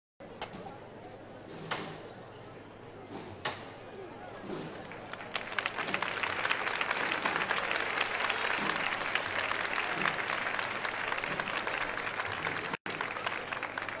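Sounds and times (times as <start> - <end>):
crowd applauding: 4.8 - 14.0.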